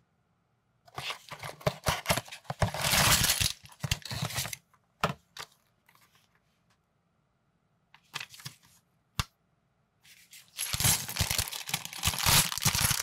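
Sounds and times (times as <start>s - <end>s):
cardboard and plastic bag crinkling: 1.0s - 4.6s, 10.4s - 13.0s.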